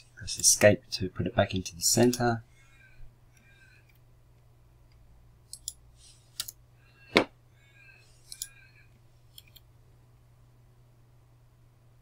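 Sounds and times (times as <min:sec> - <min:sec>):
keyboard and mouse clicks: 0:04.9 - 0:05.8, 0:06.4 - 0:06.6, 0:08.3 - 0:08.6, 0:09.3 - 0:09.7.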